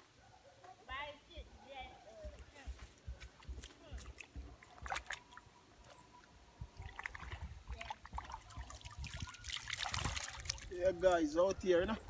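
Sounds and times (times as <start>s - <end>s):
water splashing and sloshing: 2.8s - 10.9s.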